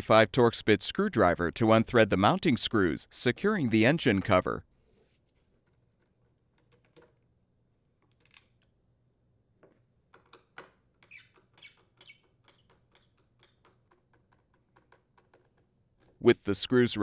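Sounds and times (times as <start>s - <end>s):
screwdriver squeaking: 11.0s - 15.5s.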